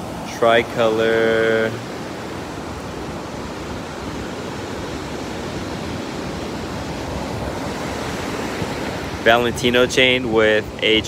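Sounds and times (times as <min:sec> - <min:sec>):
ocean surf: 0:00.0 - 0:11.0
wind: 0:00.0 - 0:11.0.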